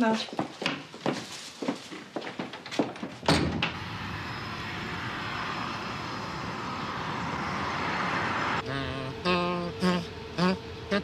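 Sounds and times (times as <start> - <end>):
car driving on road: 3.4 - 11.0.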